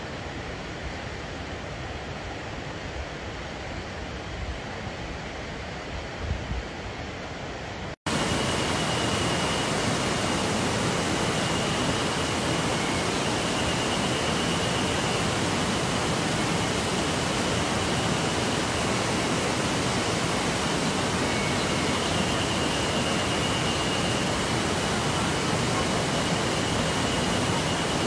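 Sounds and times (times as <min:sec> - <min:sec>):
flowing water rushing: 0:08.1 - 0:28.0.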